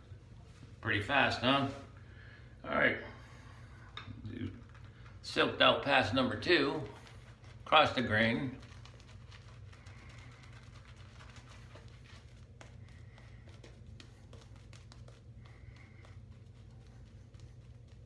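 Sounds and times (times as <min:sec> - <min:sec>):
steady low hum: 0:00.0 - 0:18.0
shaving brush swishing lather: 0:05.3 - 0:18.0.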